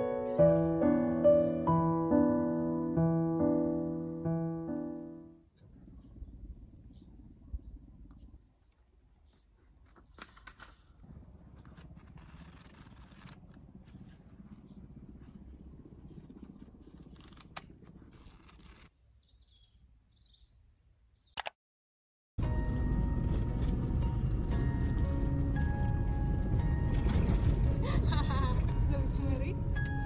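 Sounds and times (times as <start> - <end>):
low steady rumble: 5.5 - 8.5, 10.8 - 18.9, 22.4 - 30.0.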